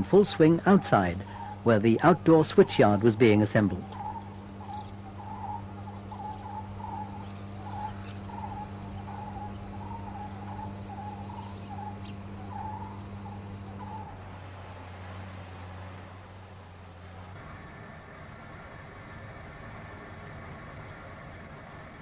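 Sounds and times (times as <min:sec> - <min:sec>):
wavering hoot-like calls: 0:00.0 - 0:16.2, 0:17.4 - 0:22.0
steady low hum: 0:00.0 - 0:22.0.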